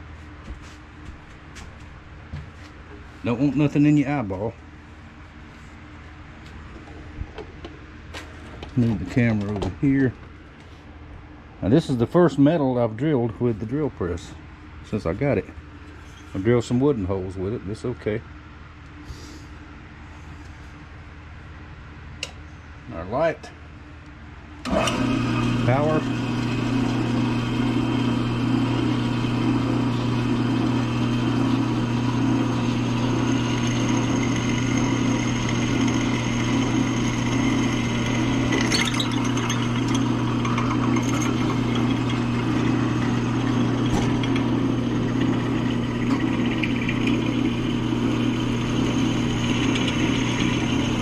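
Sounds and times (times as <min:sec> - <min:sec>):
drill press motor humming: 0:24.6 - 0:51.0
drill bit scratching metal: 0:29.0 - 0:51.0.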